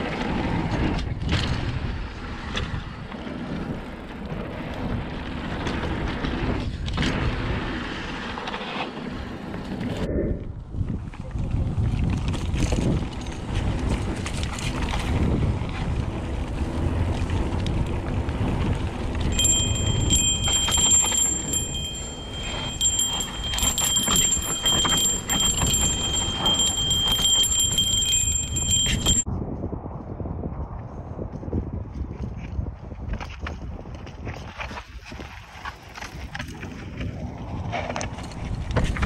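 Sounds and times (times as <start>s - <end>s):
bike tyres rolling over dirt: 0.0s - 10.0s, 10.9s - 29.2s, 31.8s - 39.0s
bike frame rattling: 12.2s - 29.2s.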